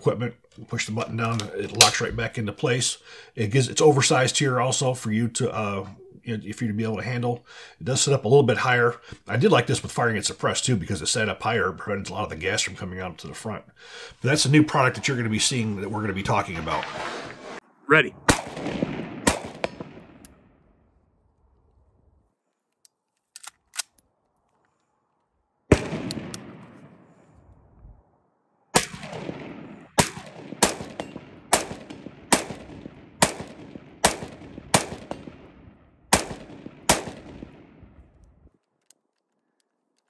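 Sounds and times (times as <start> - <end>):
rifle shots: 18.3 - 20.5, 25.7 - 27.2, 28.7 - 38.0.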